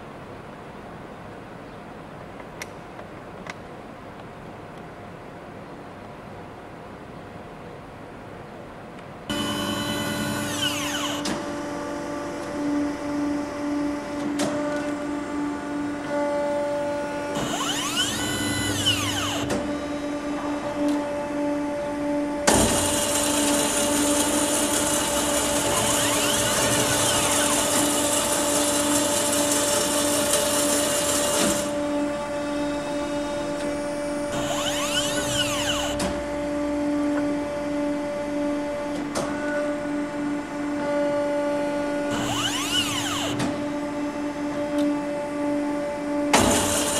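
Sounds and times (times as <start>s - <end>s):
band saw motor humming: 9.3s - 14.2s, 15.1s - 38.9s, 41.6s - 44.0s
falling whine: 25.0s - 28.7s, 31.7s - 39.0s.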